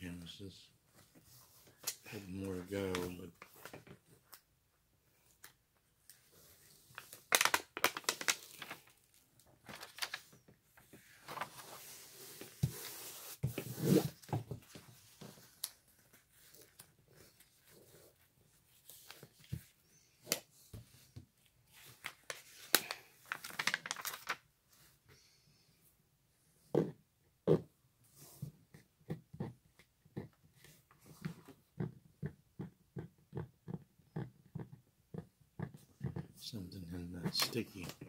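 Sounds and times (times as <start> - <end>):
paper and plastic film crinkling: 6.9 - 10.4, 21.9 - 24.4.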